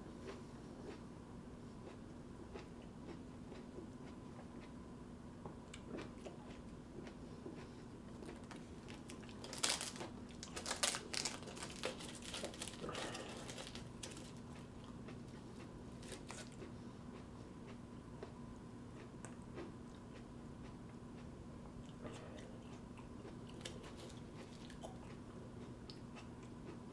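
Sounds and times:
dry husk crinkling and tearing: 8.2s - 14.6s, 16.0s - 16.6s.

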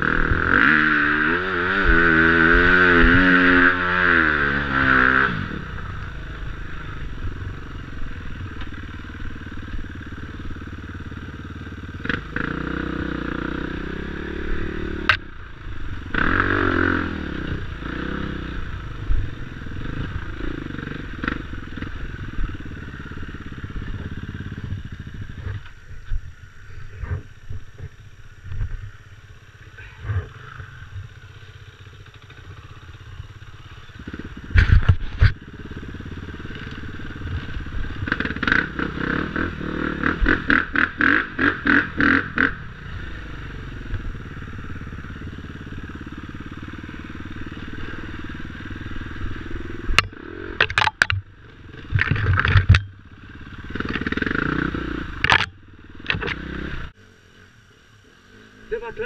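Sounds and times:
motorcycle engine surging: 0.0s - 59.0s
knocks and clatter over bumps: 34.1s - 35.4s, 49.9s - 52.9s, 55.2s - 56.4s.

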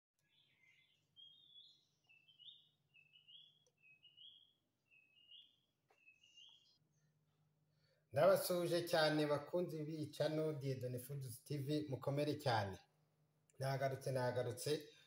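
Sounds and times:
bird singing faintly: 0.2s - 7.1s.

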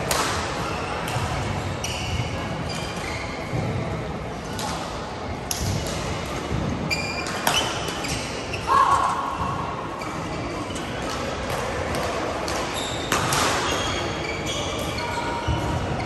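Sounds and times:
play on neighbouring courts: 0.0s - 16.0s
shoes squeaking on court: 0.6s - 3.8s, 6.9s - 8.7s, 12.5s - 16.0s.

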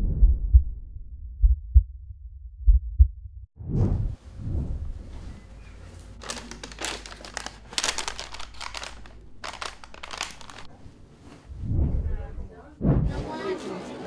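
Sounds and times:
paper wrapping crinkling: 5.9s - 10.8s
low thud: 12.8s - 13.2s.

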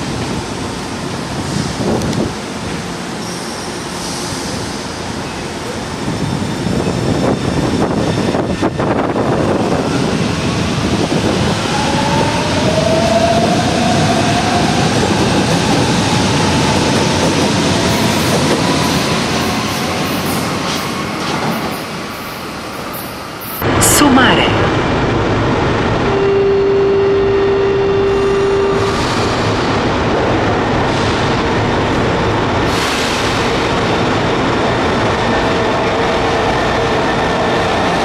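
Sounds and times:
train wheels rumbling on rails: 0.0s - 23.0s, 28.8s - 38.0s.

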